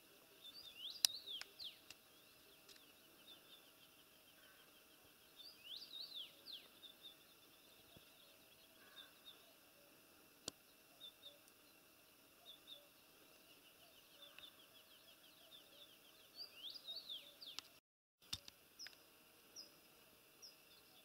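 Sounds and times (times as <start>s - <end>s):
small bird chirps: 0.4s - 11.8s, 12.4s - 17.8s.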